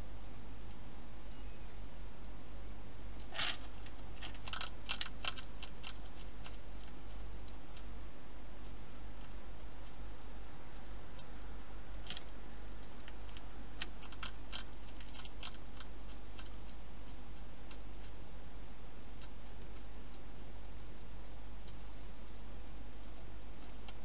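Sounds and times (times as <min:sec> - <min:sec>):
low hum: 0:00.0 - 0:24.0
hedgehog chewing clicks: 0:03.2 - 0:07.9, 0:12.0 - 0:18.2.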